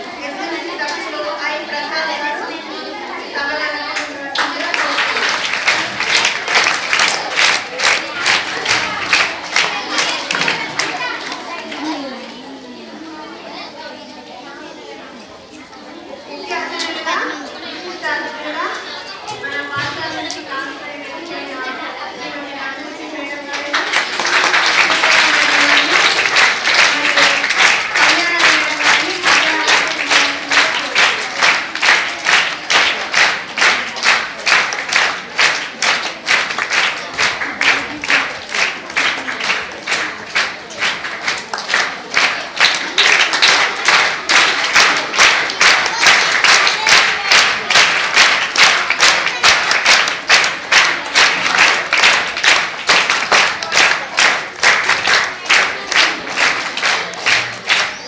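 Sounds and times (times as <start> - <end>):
voices: 0.0 - 58.0
crowd clapping in unison: 3.8 - 12.1, 23.4 - 58.0.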